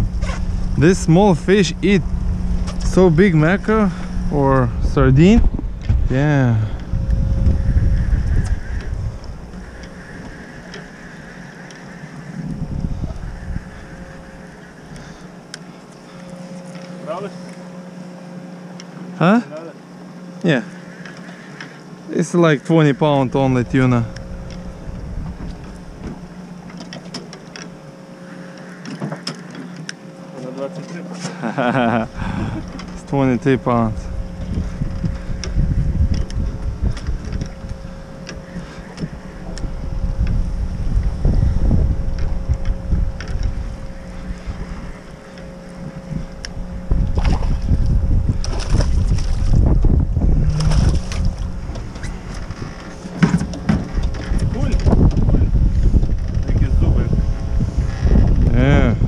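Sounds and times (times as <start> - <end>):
wind buffeting microphone: 0.0 - 15.5, 22.6 - 26.7, 31.9 - 59.0
boat engine idling: 0.0 - 59.0
water sloshing against hull: 6.7 - 19.2, 19.8 - 58.5.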